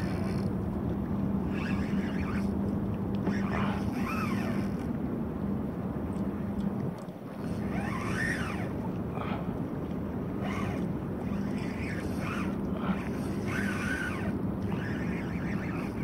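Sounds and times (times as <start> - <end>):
fishing reel whirring: 0.0 - 0.6, 1.3 - 5.0, 7.3 - 9.4, 10.2 - 16.0
water noise: 0.0 - 16.0
wind: 0.0 - 16.0.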